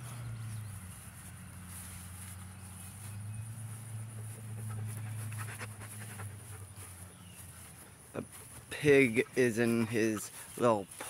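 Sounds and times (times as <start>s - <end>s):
dog panting: 4.1s - 8.8s.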